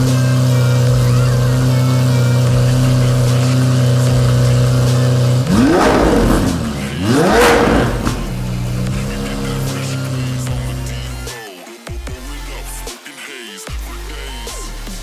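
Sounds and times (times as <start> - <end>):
car engine idling and revving: 0.0 - 11.3.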